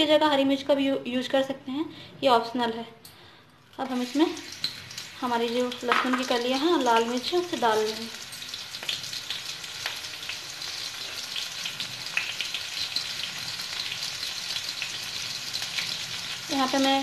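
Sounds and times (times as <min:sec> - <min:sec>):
garlic and chillies sizzling in oil: 0:03.7 - 0:17.0.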